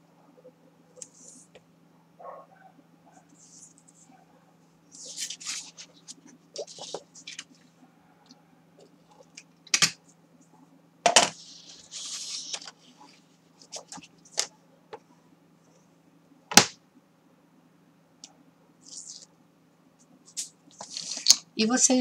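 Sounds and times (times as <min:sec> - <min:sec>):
paper rustling and sliding: 0:05.0 - 0:07.6, 0:11.3 - 0:14.5, 0:20.3 - 0:21.4.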